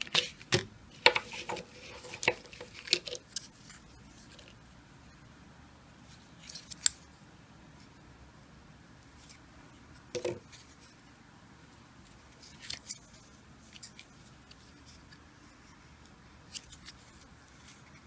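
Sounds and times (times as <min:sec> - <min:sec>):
cardboard coin holders rustling: 0:00.0 - 0:04.5.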